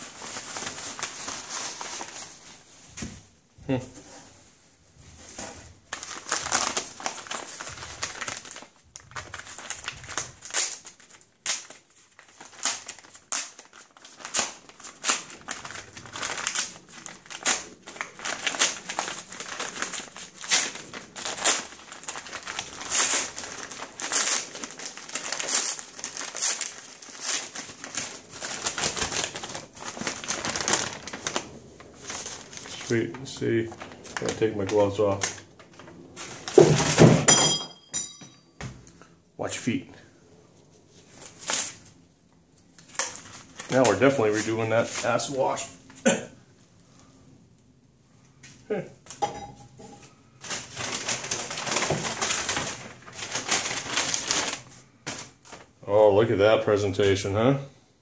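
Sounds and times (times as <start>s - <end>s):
plastic packaging crinkling: 0.0s - 2.8s, 5.8s - 37.2s, 41.0s - 42.0s, 42.6s - 46.0s, 49.1s - 55.8s.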